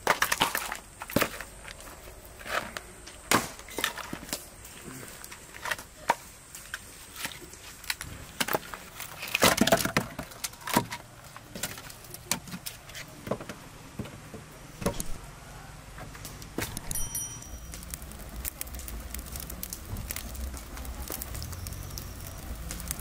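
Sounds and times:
firewood logs knocking together: 0:00.0 - 0:01.8, 0:08.0 - 0:12.7, 0:17.7 - 0:23.0.

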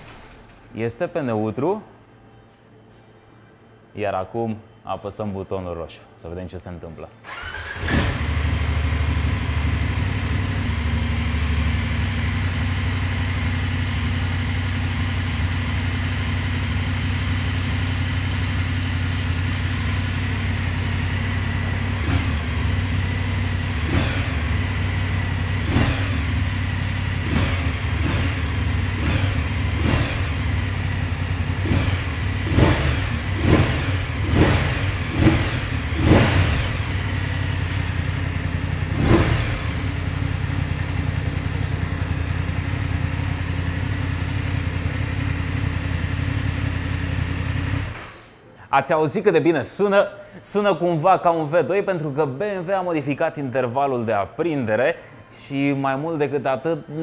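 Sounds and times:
motorcycle engine starting and idling: 0:00.0 - 0:01.1, 0:07.2 - 0:48.5
engine revving: 0:07.3 - 0:13.1, 0:21.0 - 0:48.1.

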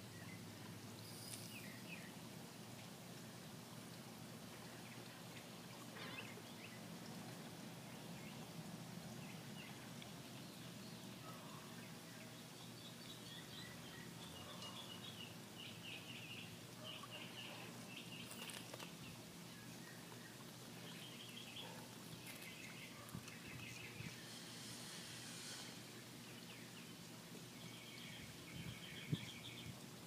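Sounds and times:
small birds chirping: 0:09.2 - 0:29.8.

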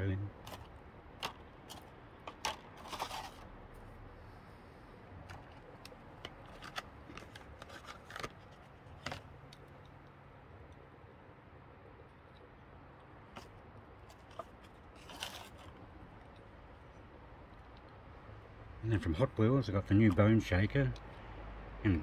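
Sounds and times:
low steady hum: 0:00.0 - 0:22.0
small clicks and handling knocks: 0:00.4 - 0:03.4, 0:05.2 - 0:10.8, 0:12.2 - 0:16.5.

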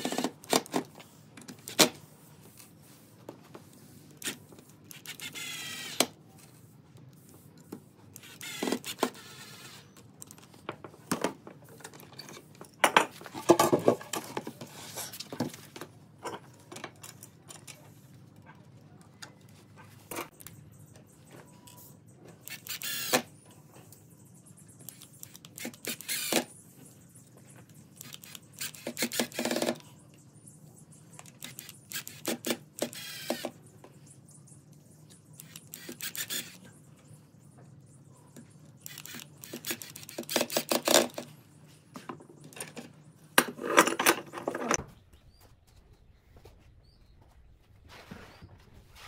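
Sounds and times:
cordless drill driving screws: 0:04.2 - 0:06.1, 0:08.2 - 0:09.8, 0:22.5 - 0:23.2, 0:24.9 - 0:26.4, 0:31.4 - 0:33.5, 0:35.4 - 0:36.6.

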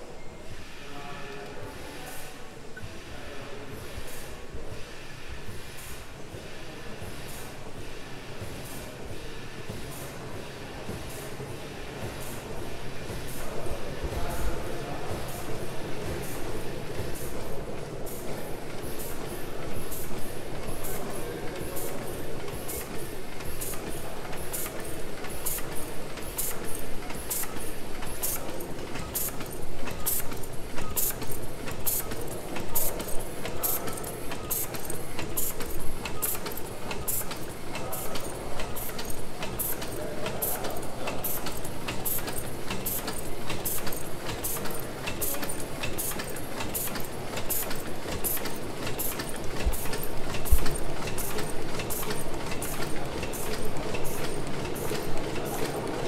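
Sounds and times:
steam engine running: 0:18.3 - 0:56.0
sharp mechanical clicks: 0:41.1 - 0:55.7.

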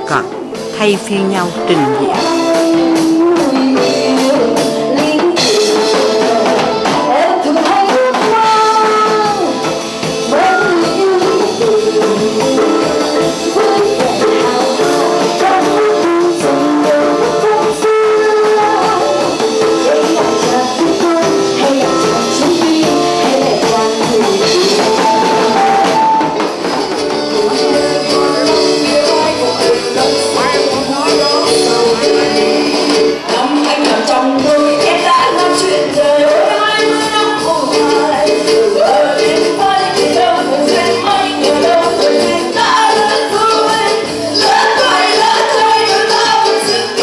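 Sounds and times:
woman singing: 0:00.0 - 0:26.4, 0:27.1 - 0:47.0
drum kit beat: 0:00.0 - 0:47.0
live band playing: 0:00.0 - 0:47.0.

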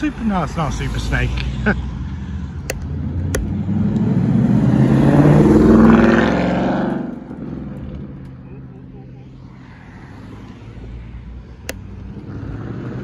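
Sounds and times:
car engine accelerating hard: 0:03.0 - 0:08.4, 0:12.0 - 0:13.0.

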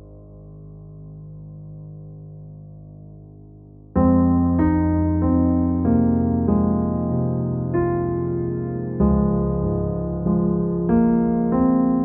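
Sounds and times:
piano-like keyboard music: 0:03.9 - 0:12.0.

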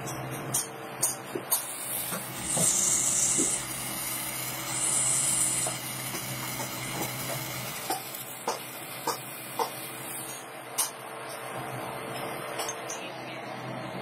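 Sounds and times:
electric arc hissing: 0:01.5 - 0:10.4.

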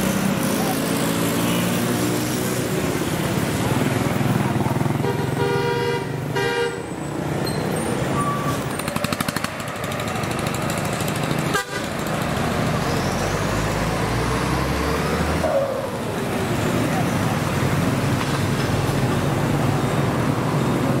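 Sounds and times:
motorbikes and trucks passing: 0:00.0 - 0:21.0
vehicle horn tooting: 0:05.0 - 0:06.9, 0:11.5 - 0:12.0.

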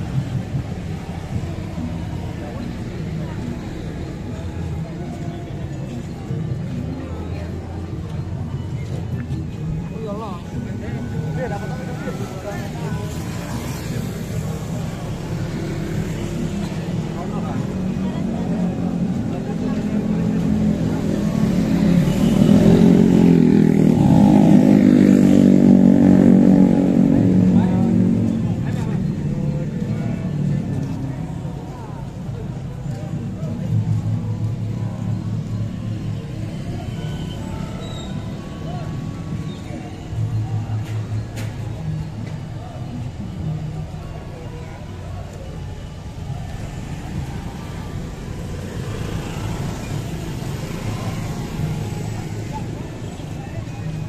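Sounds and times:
low rumble of road traffic: 0:00.0 - 0:54.0.

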